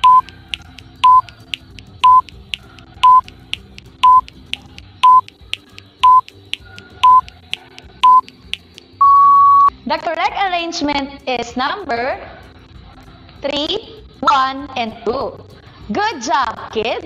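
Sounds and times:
timer beeps: 0.0s - 0.3s, 1.0s - 1.4s, 2.0s - 2.3s, 3.0s - 3.3s, 4.0s - 4.3s, 5.0s - 5.3s, 6.0s - 6.3s, 7.0s - 7.3s, 8.0s - 8.3s, 9.0s - 9.7s
sharp ticks: 0.0s - 8.9s.

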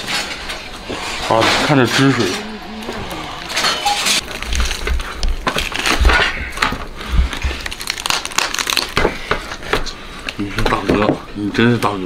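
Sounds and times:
roasted meat ripping and crunching: 1.3s - 9.6s.

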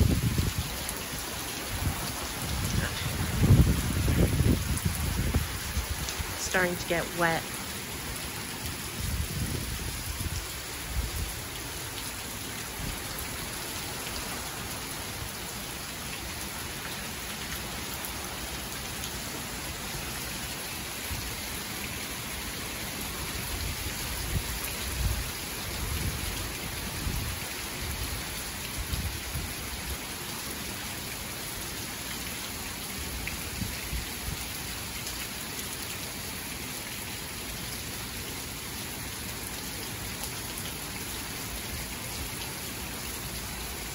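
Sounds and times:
heavy rain hiss: 0.0s - 43.9s.

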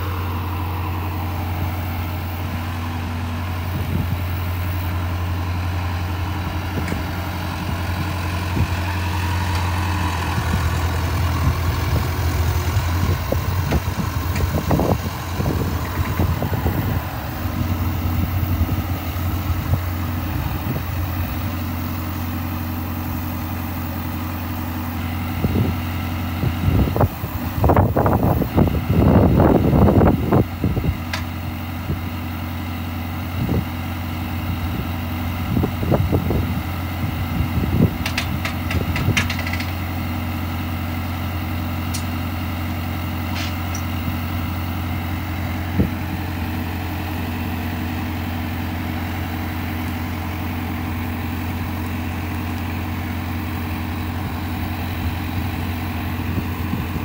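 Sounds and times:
engine idling: 0.0s - 57.0s
metallic clanking and rattling: 38.0s - 39.9s.

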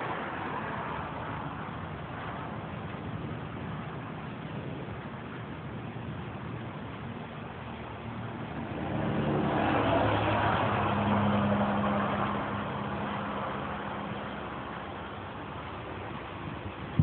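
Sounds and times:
vehicle passing by: 8.0s - 16.8s.

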